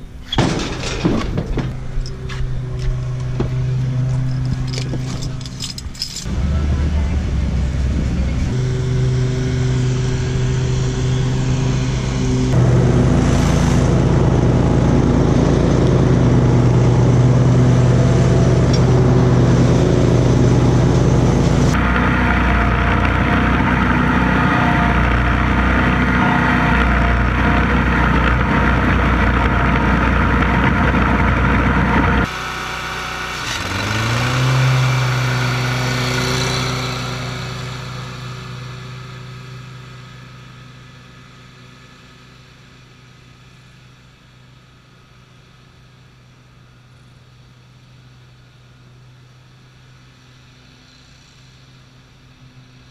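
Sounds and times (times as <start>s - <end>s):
riding lawn mower engine: 0.0s - 52.9s
mower blades cutting: 0.3s - 41.7s.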